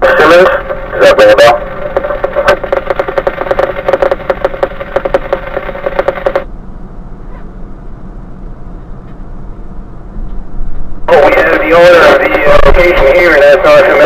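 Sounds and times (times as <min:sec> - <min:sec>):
two-way radio crackling: 0:00.0 - 0:06.5, 0:11.1 - 0:14.0
fire engine idling rumble: 0:00.0 - 0:14.0.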